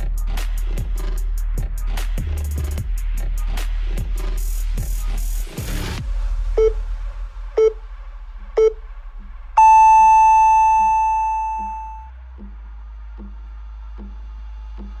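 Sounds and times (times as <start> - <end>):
long higher beep: 9.6 - 12.1
timer short beeps: 9.6 - 12.1.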